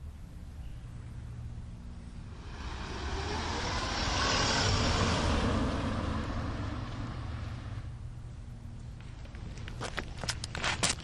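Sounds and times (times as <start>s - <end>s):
steady low rumble: 0.0s - 11.0s
vehicle passing by: 1.0s - 9.8s.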